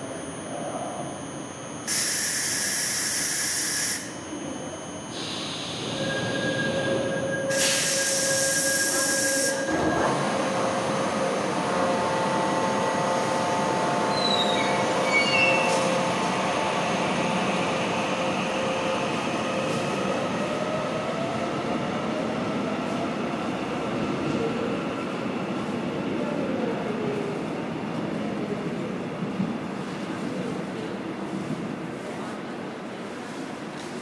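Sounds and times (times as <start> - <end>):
high wheel squeals: 14.1 - 15.8.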